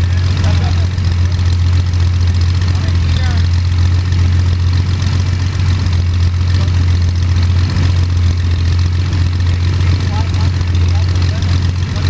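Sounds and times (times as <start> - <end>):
aircraft engine running: 0.0 - 12.0.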